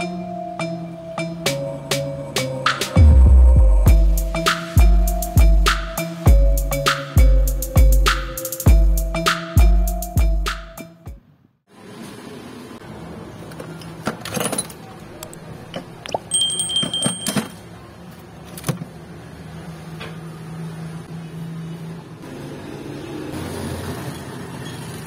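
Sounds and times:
metal parts clanking together: 14.1s - 14.8s, 16.3s - 17.6s
high metallic ring: 16.3s - 17.6s.

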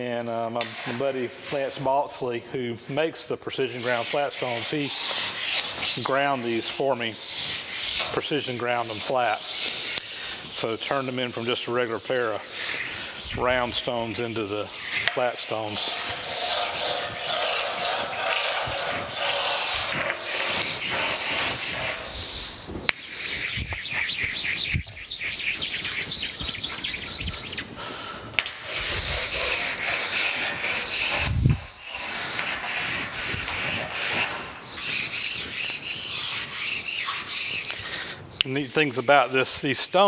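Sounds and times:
sharpening stone rasping on metal: 14.7s - 22.3s, 28.7s - 37.8s.

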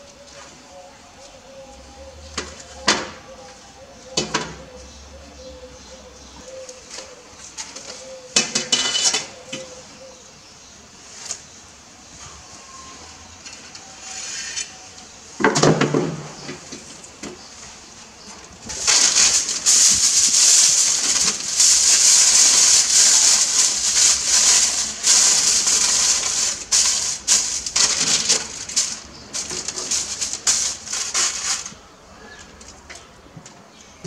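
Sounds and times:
aluminium foil crinkling: 18.2s - 33.1s.

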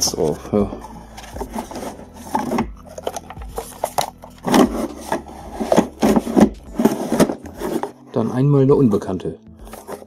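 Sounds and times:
plastic case scraping on cardboard: 1.2s - 8.6s.

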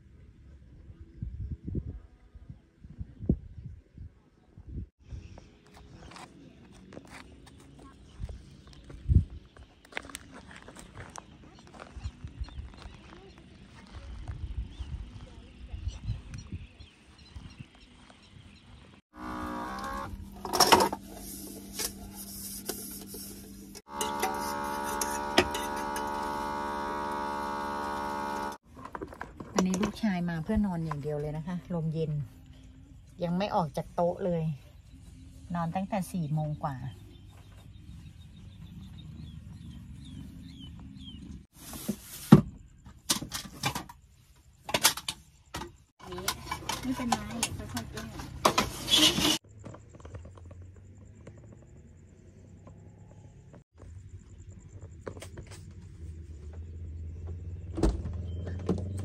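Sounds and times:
water pump humming: 19.1s - 20.3s, 23.9s - 28.6s.

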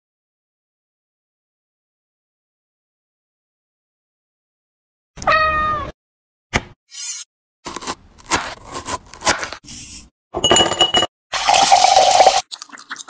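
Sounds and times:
glass clinking: 10.4s - 11.1s
ice clattering into a glass: 10.4s - 12.4s.

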